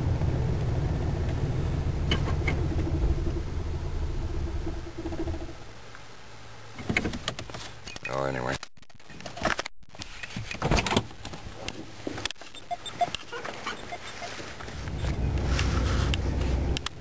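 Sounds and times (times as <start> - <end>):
car engine idling: 0.0 - 6.7, 14.7 - 17.0.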